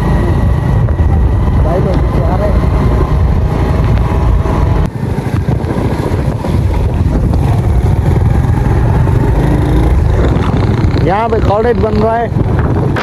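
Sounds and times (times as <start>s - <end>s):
motorcycle engines running: 0.0s - 13.0s
wind buffeting microphone: 0.0s - 13.0s.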